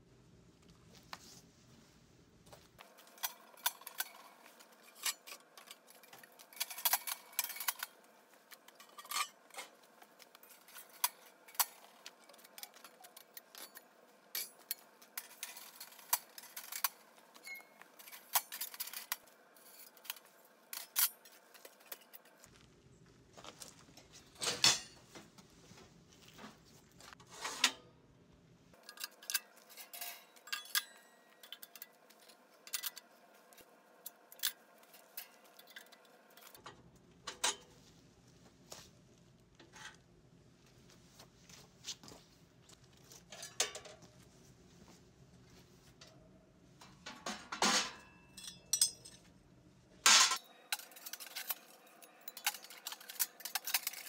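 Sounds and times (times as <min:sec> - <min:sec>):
metal stove parts clanking: 0:02.8 - 0:22.4, 0:24.4 - 0:25.2, 0:27.1 - 0:27.9, 0:28.8 - 0:33.1, 0:34.0 - 0:37.7, 0:43.2 - 0:44.2, 0:46.8 - 0:49.3, 0:50.0 - 0:54.0.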